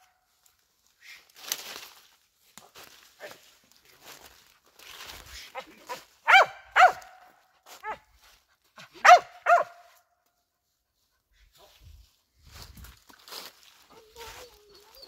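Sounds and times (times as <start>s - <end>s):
dog barking: 5.6s - 8.0s, 9.0s - 10.0s.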